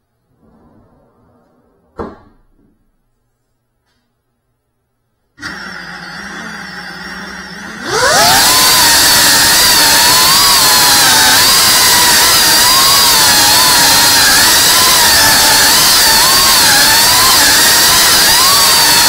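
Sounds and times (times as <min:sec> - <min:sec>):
drone motors buzzing: 0:05.4 - 0:19.0.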